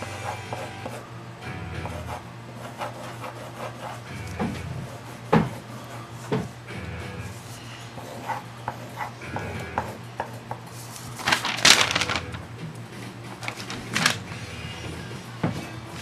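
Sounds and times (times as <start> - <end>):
paper rustling: 10.8 - 12.5, 13.3 - 14.4.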